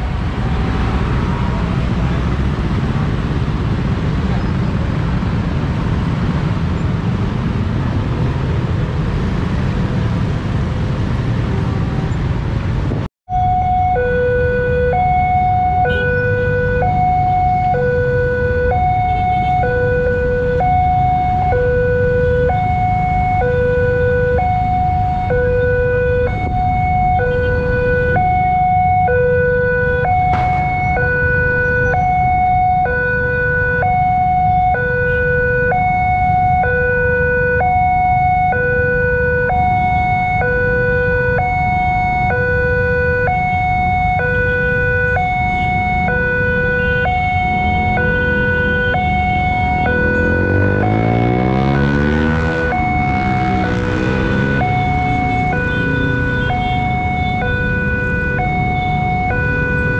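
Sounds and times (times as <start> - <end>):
two-tone crossing alarm: 13.3 - 59.9
motorcycles passing: 15.0 - 59.9.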